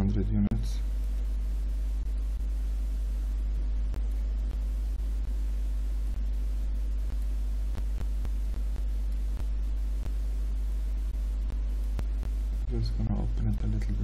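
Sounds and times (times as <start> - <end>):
low electrical hum: 0.0 - 14.0
faint irregular clicks: 0.8 - 2.6, 3.2 - 5.4, 6.0 - 10.3, 11.1 - 12.7.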